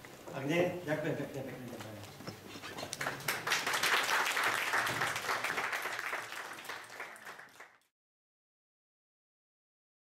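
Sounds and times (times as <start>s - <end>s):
audience applauding: 2.9s - 7.9s.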